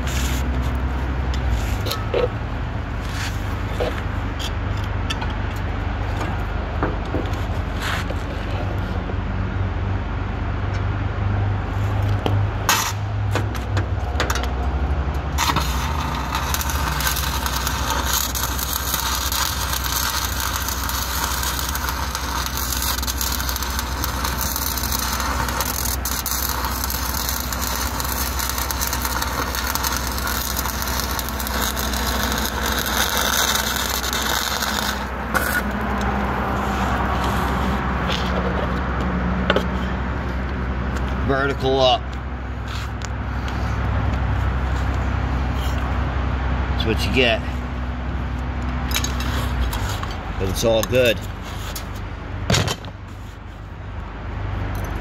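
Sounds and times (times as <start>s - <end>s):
low engine hum: 0.0s - 50.4s
welding arc crackling: 14.0s - 38.3s.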